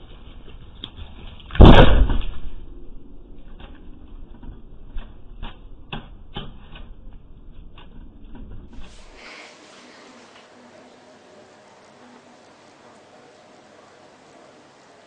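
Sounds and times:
loud bang: 1.6 - 4.0.

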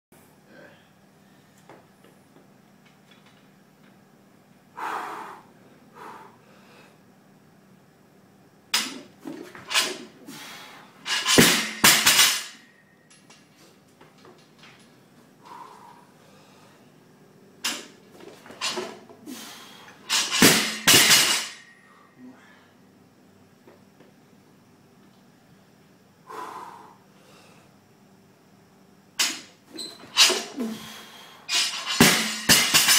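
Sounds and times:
sharp breath: 4.8 - 7.0, 26.2 - 27.7
loud grunting exhale: 26.3 - 27.5, 30.5 - 31.4
barbell clanking: 31.5 - 32.9
weight plates rattling: 31.5 - 32.9.

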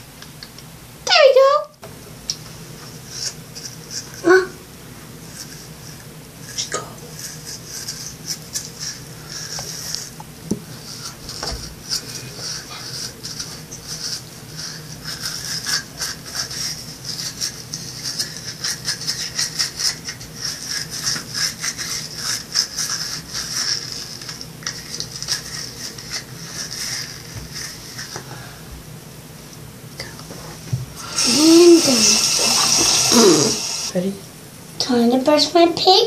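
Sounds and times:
toothbrush scrubbing teeth: 3.0 - 4.3, 5.2 - 28.3, 31.0 - 34.0.

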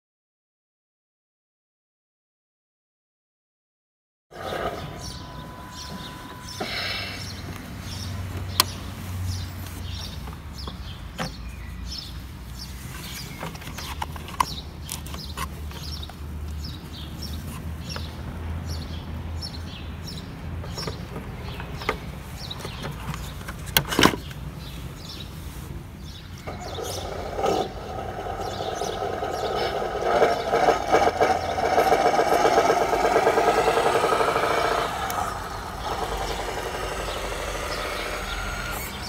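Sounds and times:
birds chirping: 4.3 - 39.0
electronic beep: 4.5 - 7.6
simulated diesel engine idling: 4.7 - 8.0, 26.5 - 39.0.

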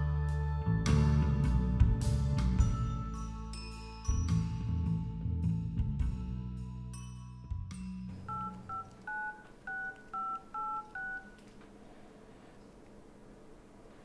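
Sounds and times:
soft music: 0.0 - 9.0
phone keypad touch-tone beeps: 8.2 - 11.4.

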